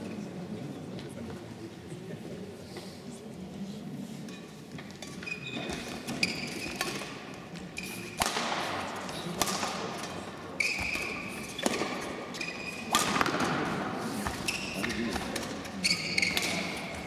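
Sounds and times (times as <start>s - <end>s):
shoes squeaking on floor: 5.1s - 7.0s, 10.5s - 13.0s, 14.2s - 17.0s
shuttlecock hit with rackets: 8.1s - 12.2s, 12.9s - 16.9s.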